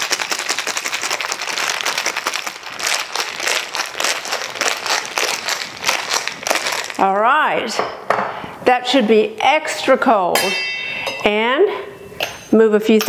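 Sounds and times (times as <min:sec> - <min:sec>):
ice rattling in cocktail shaker: 0:00.0 - 0:07.1.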